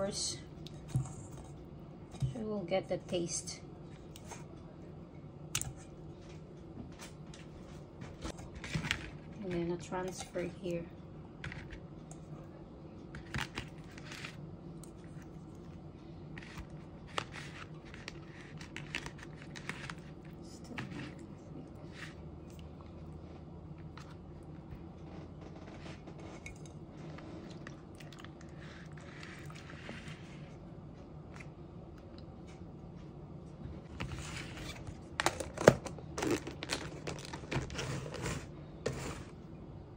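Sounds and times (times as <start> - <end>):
low steady hum: 0.0 - 39.9
plastic crinkling: 35.2 - 38.4.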